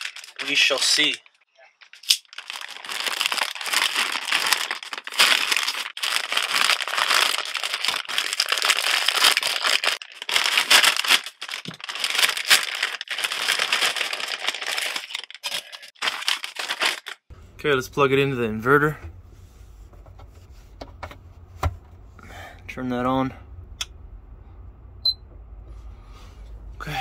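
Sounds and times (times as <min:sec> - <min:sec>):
plastic bags crinkling: 0:00.0 - 0:17.3.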